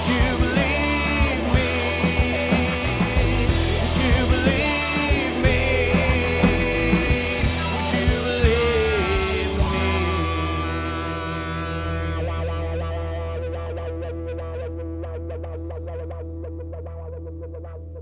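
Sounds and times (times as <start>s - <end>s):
person singing lead vocal: 0.0s - 13.3s
rock band playing: 0.0s - 18.0s.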